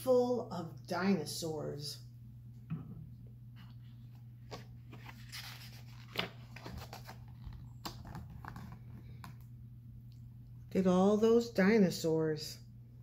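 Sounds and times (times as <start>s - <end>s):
steady low hum: 0.0s - 13.0s
book pages rustling: 3.6s - 9.5s.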